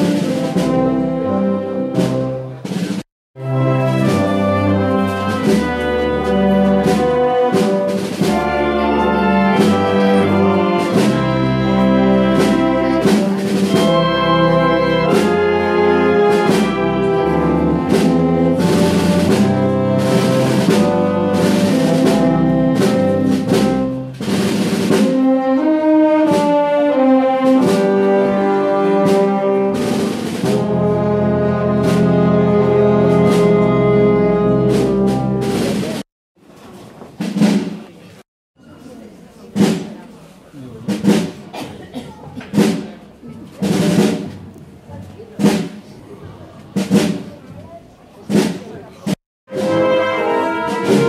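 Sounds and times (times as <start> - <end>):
brass band playing a march: 0.0 - 36.0, 43.6 - 44.3, 49.5 - 51.0
heavy drum or cymbal strikes: 5.1 - 25.3, 29.0 - 30.9.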